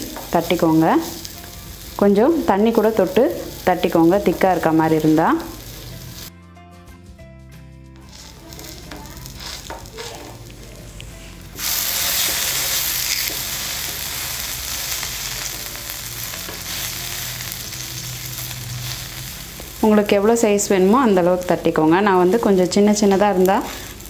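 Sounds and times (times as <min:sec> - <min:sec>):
dough sizzling on hot griddle: 0:00.0 - 0:06.3, 0:08.0 - 0:24.0.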